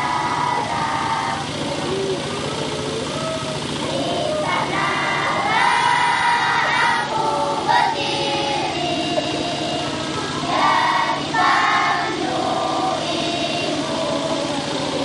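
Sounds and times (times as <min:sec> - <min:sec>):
children's choir singing: 0:00.0 - 0:02.6, 0:03.6 - 0:15.0
steady background hiss: 0:03.2 - 0:15.0.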